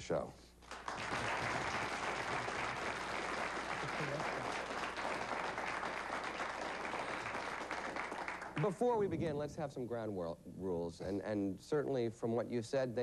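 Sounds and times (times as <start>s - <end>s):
audience applauding: 0.6s - 8.8s.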